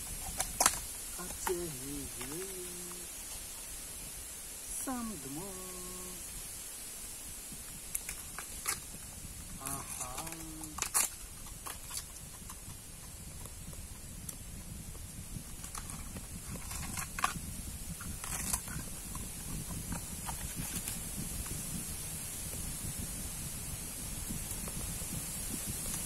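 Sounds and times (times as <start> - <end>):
husks tearing: 0.0 - 3.6, 7.9 - 13.6.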